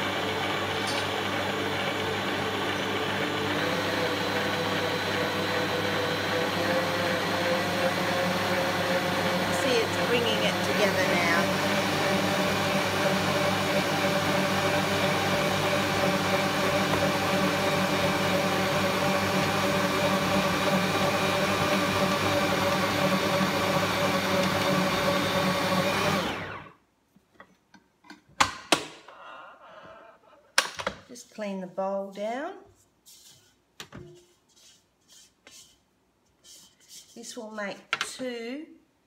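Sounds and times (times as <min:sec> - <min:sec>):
stand mixer motor kneading dough: 0:00.0 - 0:26.7.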